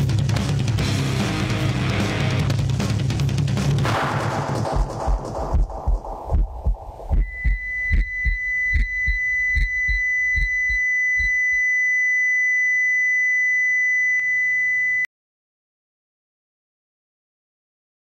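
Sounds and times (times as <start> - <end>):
heartbeat thumps: 4.1 - 11.4
steady high electronic beep: 7.1 - 15.1.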